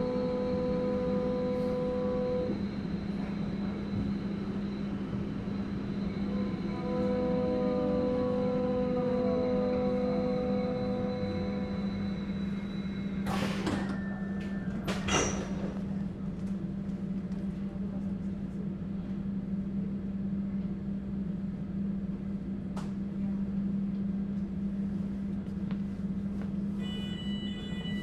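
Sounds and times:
train equipment humming: 0.0s - 21.8s.

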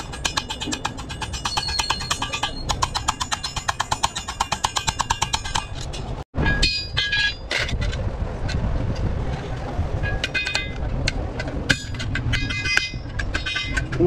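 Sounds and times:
hammer tapping sheet metal: 0.0s - 6.8s.

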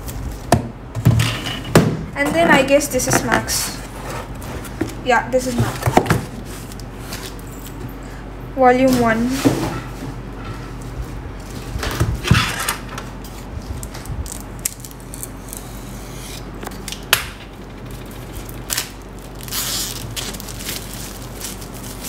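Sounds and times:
plastic wrap rustling and crinkling: 10.8s - 15.7s, 18.0s - 22.0s
utility knife cutting plastic wrap: 18.6s - 22.0s.

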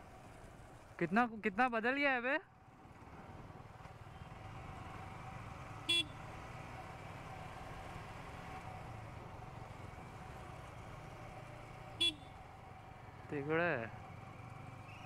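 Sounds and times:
motorcycle horn toot: 5.9s - 6.2s, 12.0s - 12.4s.

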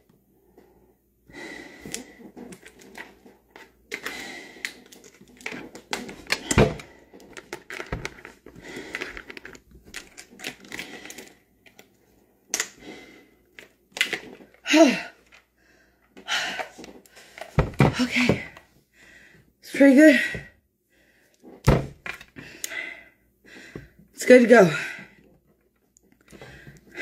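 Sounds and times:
respirator handling clicks and rustles: 1.8s - 18.7s.

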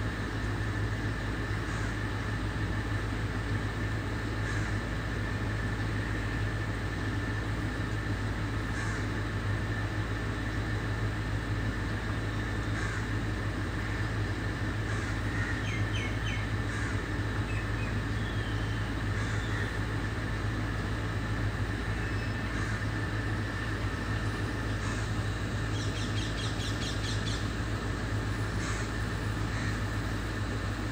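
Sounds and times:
low outdoor rumble: 0.0s - 30.9s
high bird calls: 14.8s - 20.0s, 22.0s - 23.0s, 24.7s - 27.6s, 28.5s - 29.9s.

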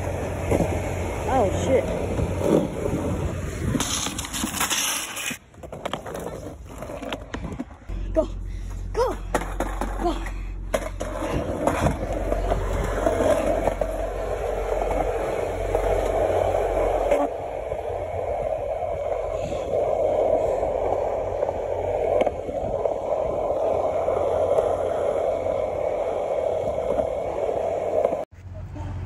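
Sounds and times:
skateboard wheels rolling on concrete: 0.0s - 28.7s.

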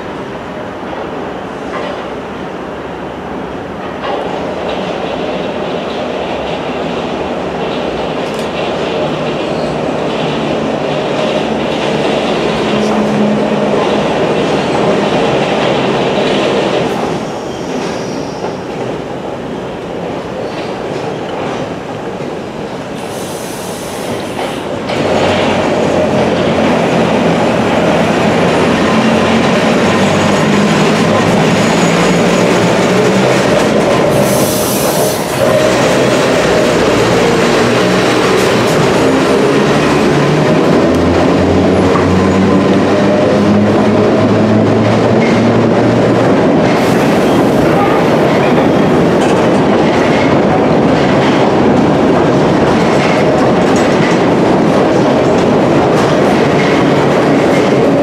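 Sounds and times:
rail and wheel noise: 0.0s - 58.0s
brief high squeal: 17.4s - 18.6s.

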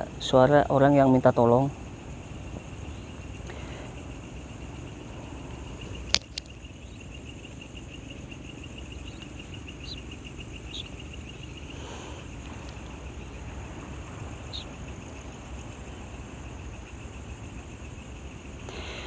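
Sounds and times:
crickets chirping: 0.0s - 19.0s
sharp click: 6.1s - 6.6s.

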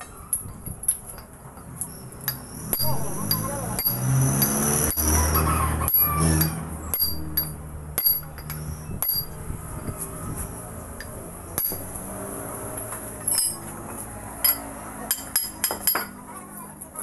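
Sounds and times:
hammer striking metal drift: 2.3s - 9.4s, 11.0s - 12.1s.

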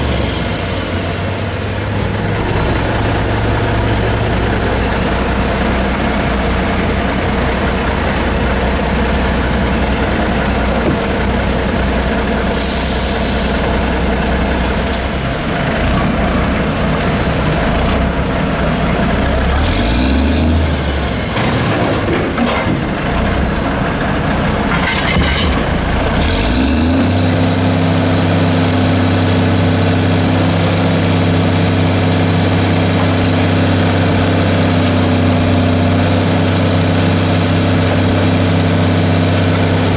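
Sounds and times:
diesel truck engine running: 0.0s - 39.9s
metal clanks: 24.7s - 25.8s.

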